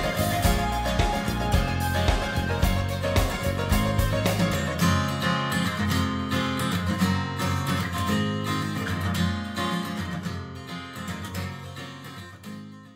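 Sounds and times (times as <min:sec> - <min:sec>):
strummed acoustic guitar music: 0:00.0 - 0:12.9.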